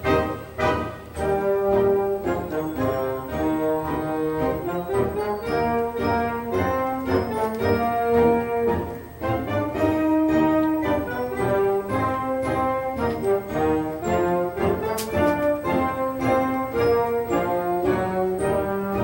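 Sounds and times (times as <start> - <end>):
orchestral music: 0.0 - 19.0.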